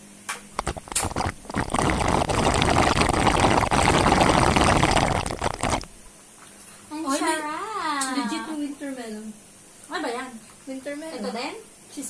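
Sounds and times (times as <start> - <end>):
straws tapping in plastic cups: 0.6 - 5.9
slurping through straws: 0.6 - 6.0.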